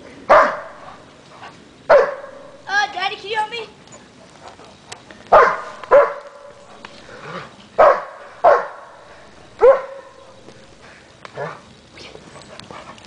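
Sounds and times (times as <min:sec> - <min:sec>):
dog barking: 0:00.3 - 0:00.8, 0:01.9 - 0:02.5, 0:05.3 - 0:06.6, 0:07.8 - 0:09.0, 0:09.6 - 0:10.4.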